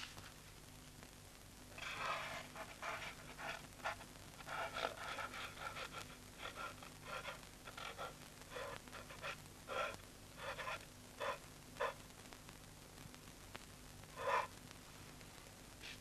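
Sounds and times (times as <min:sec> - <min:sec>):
faint steady hum: 0:00.0 - 0:16.0
person breathing hard: 0:05.7 - 0:12.0.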